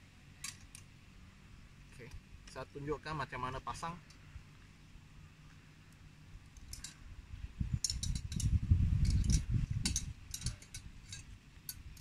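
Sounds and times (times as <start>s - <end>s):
metal rods clicking and clinking: 6.6s - 7.0s, 7.8s - 12.0s.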